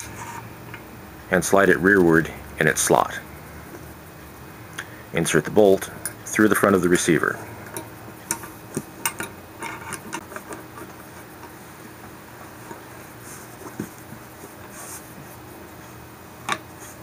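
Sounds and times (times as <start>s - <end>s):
handling noises: 5.4s - 17.0s.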